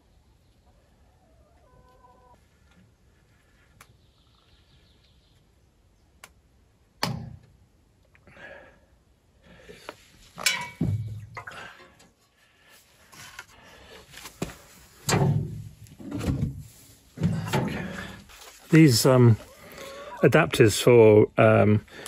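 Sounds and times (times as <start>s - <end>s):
metal clunk: 10.4s - 12.0s, 15.0s - 16.6s
rustle: 18.3s - 20.1s.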